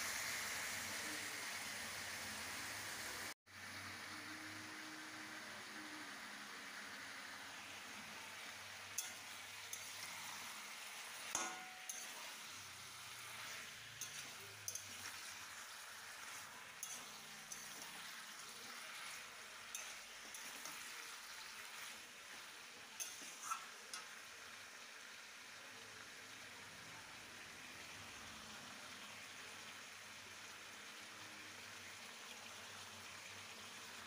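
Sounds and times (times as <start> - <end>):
food sizzling in oil: 0.0 - 34.0
metal spatula scraping pan: 11.3 - 22.0, 23.0 - 24.1.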